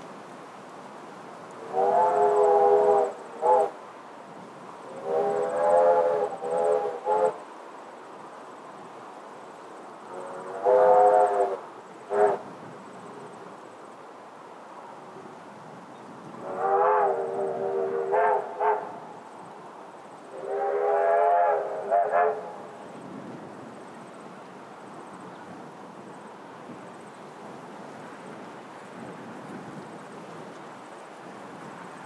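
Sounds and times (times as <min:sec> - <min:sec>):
distant train chime whistle: 0:01.6 - 0:03.8, 0:04.9 - 0:07.4, 0:10.1 - 0:12.4, 0:16.4 - 0:19.2, 0:20.3 - 0:22.8.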